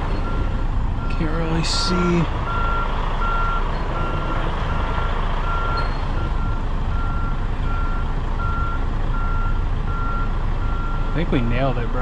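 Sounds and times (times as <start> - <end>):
diesel truck engine rumble: 0.0 - 12.0
backup alarm beeping: 2.5 - 11.2.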